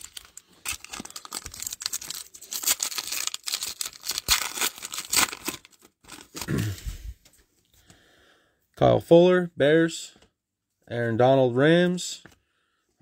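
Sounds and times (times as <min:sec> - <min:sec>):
wrapper tearing and crinkling: 0:00.0 - 0:06.7.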